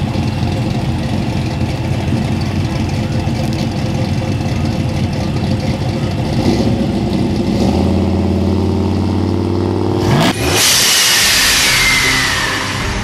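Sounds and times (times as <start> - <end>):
engine idling with loping rumble: 0.0 - 10.1
loud whooshing sound effect: 10.0 - 13.0.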